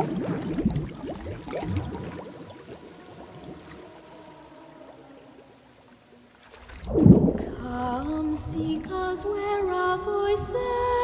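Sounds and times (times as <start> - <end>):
bathwater lapping and bubbling: 0.0 - 7.5.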